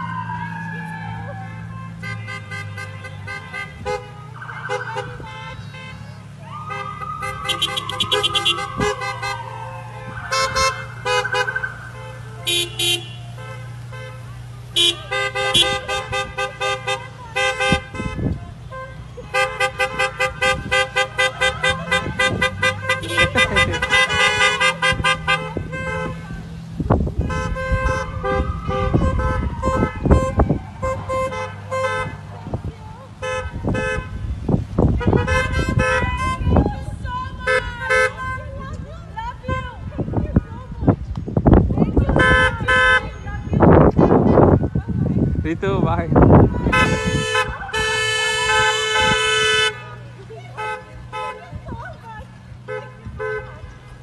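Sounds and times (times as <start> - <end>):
siren sweeping: 0.0 - 1.7, 4.2 - 5.3, 6.4 - 12.4, 27.8 - 31.3
engines rumbling: 0.0 - 54.0
car horns honking: 0.8 - 54.0.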